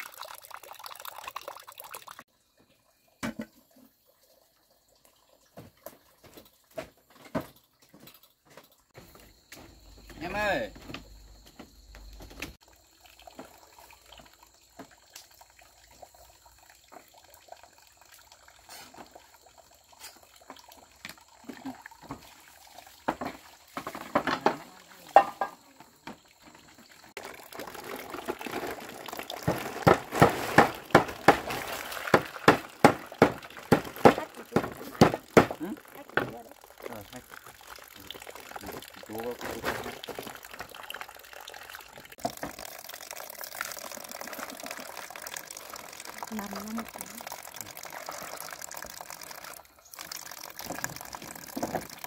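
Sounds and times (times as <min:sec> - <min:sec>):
water splashing and sloshing: 0:00.0 - 0:52.0.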